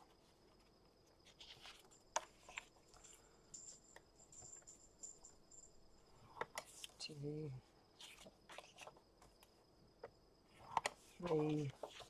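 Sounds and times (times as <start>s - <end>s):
faint high chirping: 2.6s - 6.4s
paper tapping and scraping: 10.6s - 12.0s.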